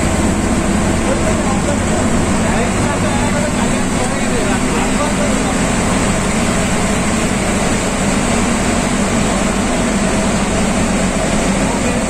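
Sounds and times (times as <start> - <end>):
vehicle engine and road noise: 0.0 - 12.0.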